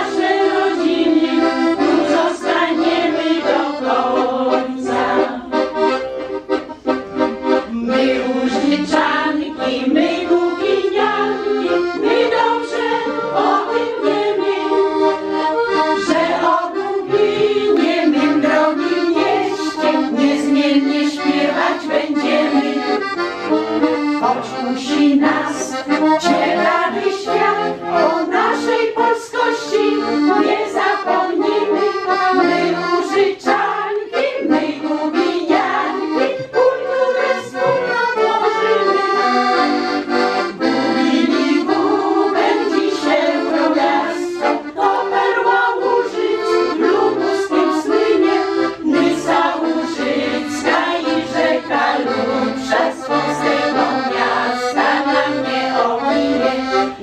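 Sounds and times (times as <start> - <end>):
women singing together: 0.0 - 6.0, 7.4 - 23.2, 24.2 - 39.3, 40.3 - 57.0
piano accordion folk tune: 0.0 - 57.0.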